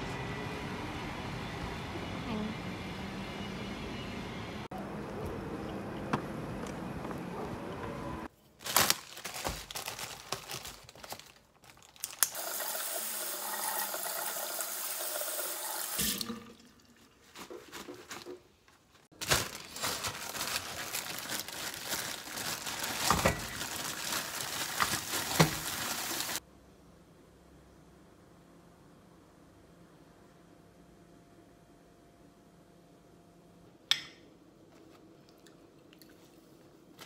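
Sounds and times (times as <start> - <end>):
tap water running into sink: 12.4 - 17.0.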